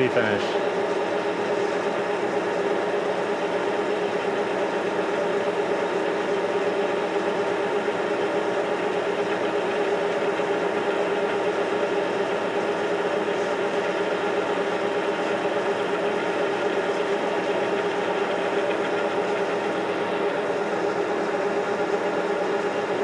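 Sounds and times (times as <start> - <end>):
lathe running with mechanical hum: 0.0 - 23.0.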